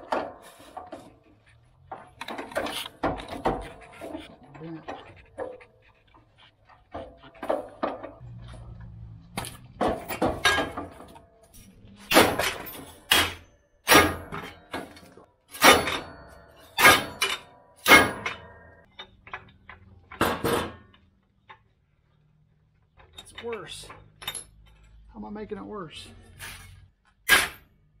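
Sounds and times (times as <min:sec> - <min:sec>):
steel parts clanking: 0:06.7 - 0:21.7, 0:22.9 - 0:25.0.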